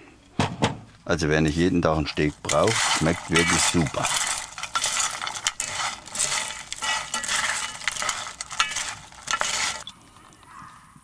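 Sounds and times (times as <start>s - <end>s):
spatulas scraping fried bread: 1.2s - 9.9s
spatulas clicking against pan: 2.4s - 9.9s.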